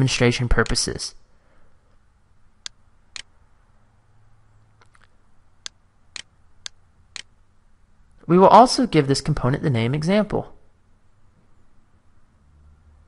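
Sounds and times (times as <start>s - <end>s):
computer mouse clicking: 2.6s - 3.3s, 4.8s - 7.3s.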